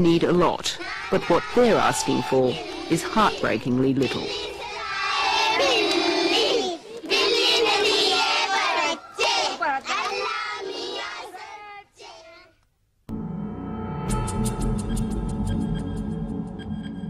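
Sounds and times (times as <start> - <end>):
children calling out together: 0.8 - 12.6.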